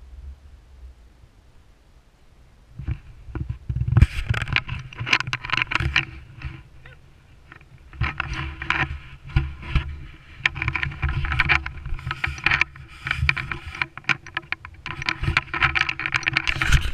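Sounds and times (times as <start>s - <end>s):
wind buffeting microphone: 2.7s - 16.9s
camera handling rustles and knocks: 2.8s - 6.7s, 7.4s - 16.9s.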